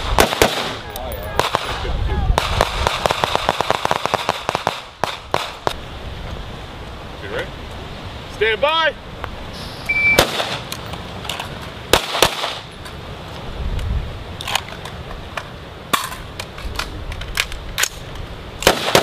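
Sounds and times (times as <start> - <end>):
rifle shots: 0.0 - 0.8, 10.2 - 10.7, 11.9 - 12.7, 18.6 - 19.0
short high beep: 9.6 - 10.2.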